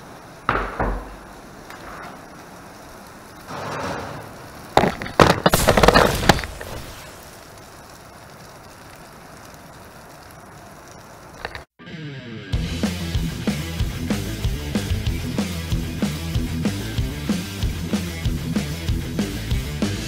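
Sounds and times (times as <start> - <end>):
fiery blast crackling: 0.0 - 11.7.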